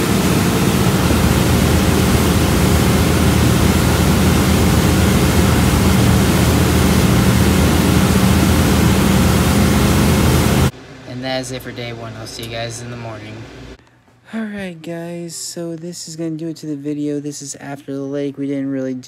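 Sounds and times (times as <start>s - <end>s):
low engine hum: 0.0s - 10.7s
wind and water rushing: 0.0s - 10.7s.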